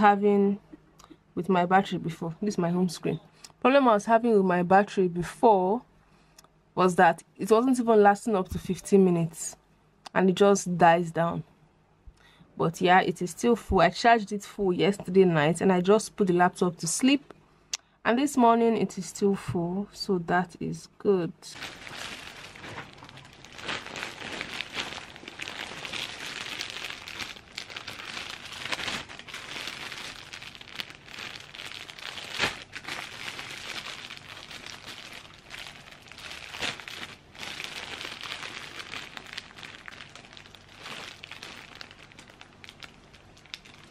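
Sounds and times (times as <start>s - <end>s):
plastic bags crinkling: 21.5s - 43.9s.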